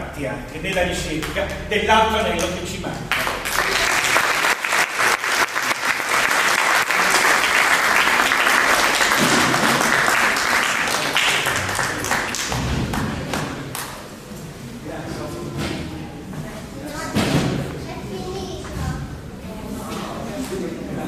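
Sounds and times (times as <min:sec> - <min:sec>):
audience applauding: 0:03.1 - 0:13.8.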